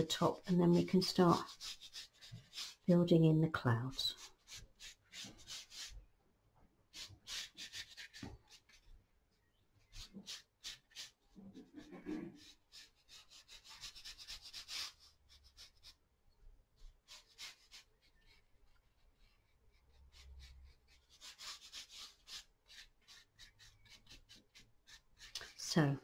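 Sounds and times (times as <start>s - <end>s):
paintbrush swishing on paper: 0.0s - 6.1s, 6.9s - 9.0s, 9.8s - 16.0s, 16.8s - 26.0s.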